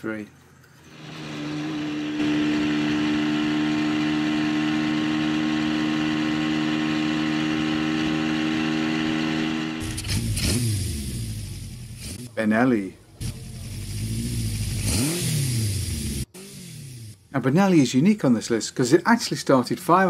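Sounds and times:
motorcycle engine running: 0:00.9 - 0:12.4, 0:13.1 - 0:17.3.

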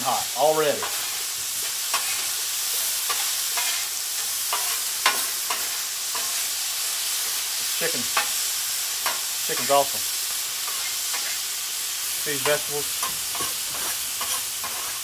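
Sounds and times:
food sizzling on a griddle: 0:00.0 - 0:15.0
metal spatulas scraping griddle: 0:01.9 - 0:06.4, 0:12.4 - 0:15.0.

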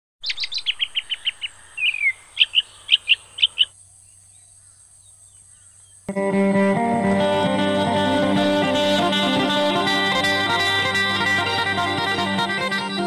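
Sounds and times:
birds calling: 0:00.2 - 0:06.1.

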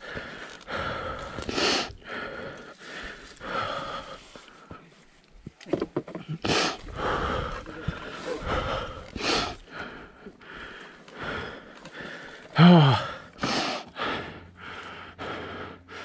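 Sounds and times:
person breathing hard: 0:00.0 - 0:05.0, 0:06.3 - 0:16.0
person grunting: 0:12.6 - 0:13.6.

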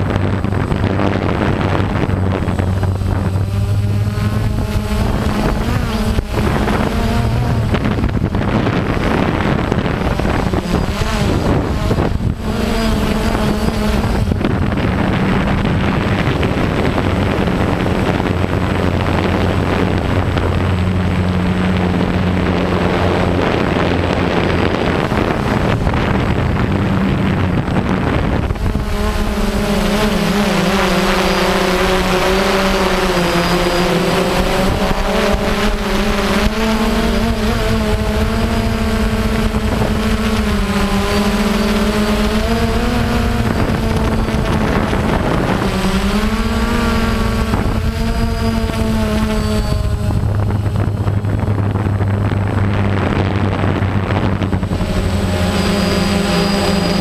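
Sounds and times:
drone motors humming: 0:00.0 - 0:57.0
higher wavering pitches: 0:52.6 - 0:57.0.

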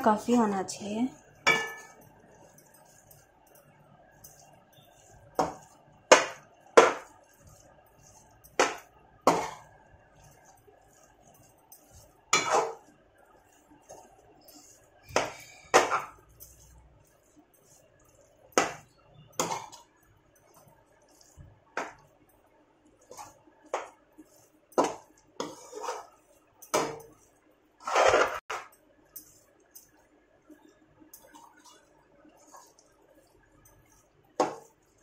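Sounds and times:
metal spatula scraping a pan: 0:01.3 - 0:03.3, 0:04.2 - 0:22.0, 0:23.0 - 0:29.4, 0:31.2 - 0:32.9.

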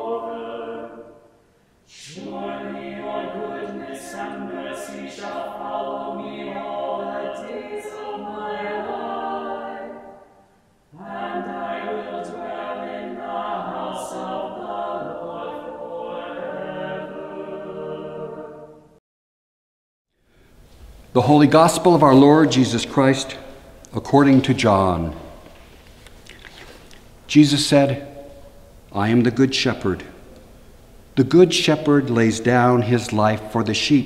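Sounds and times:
choir singing held notes: 0:00.0 - 0:19.0.

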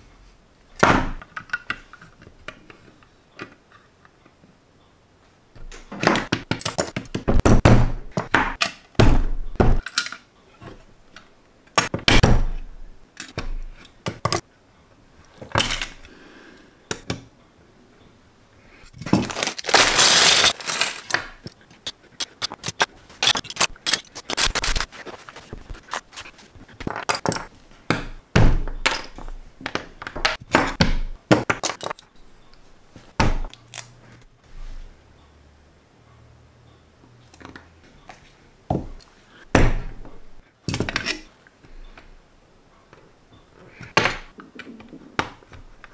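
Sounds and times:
plastic pieces rattling: 0:19.0 - 0:27.5.

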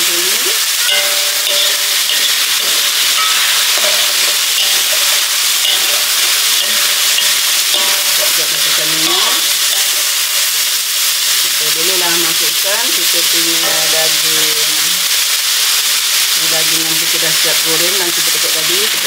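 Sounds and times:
metal spatula scraping wok: 0:00.0 - 0:10.5
paste sizzling in wok: 0:00.0 - 0:19.0.

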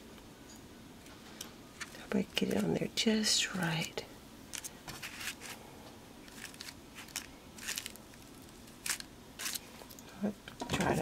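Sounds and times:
paper crinkling: 0:04.5 - 0:05.6, 0:06.2 - 0:10.0.

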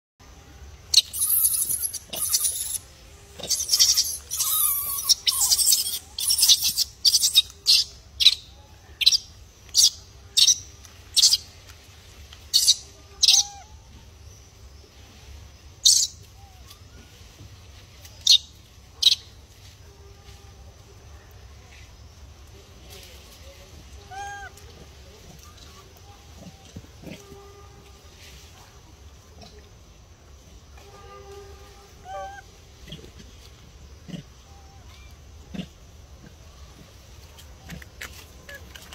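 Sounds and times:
high-pitched animal chirps: 0:00.9 - 0:02.8, 0:03.4 - 0:08.4.

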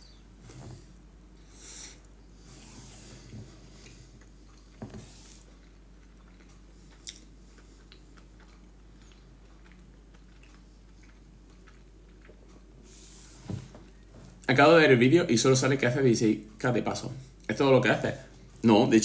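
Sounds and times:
man chewing food: 0:00.0 - 0:14.5.

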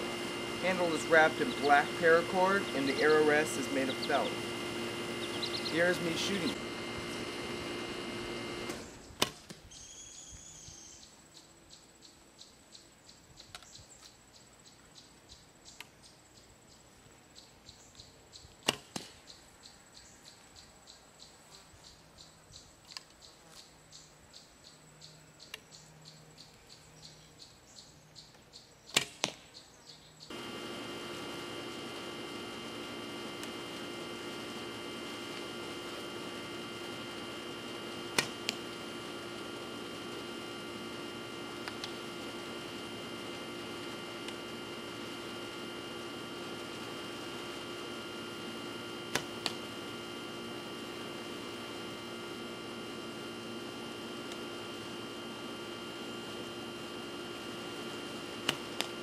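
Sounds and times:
steady background hum: 0:00.0 - 0:59.0
arrow striking target: 0:18.6 - 0:19.2.

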